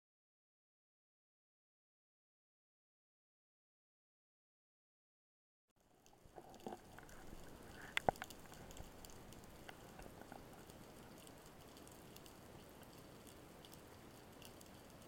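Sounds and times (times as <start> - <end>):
crackling clicks underwater: 5.8 - 15.0.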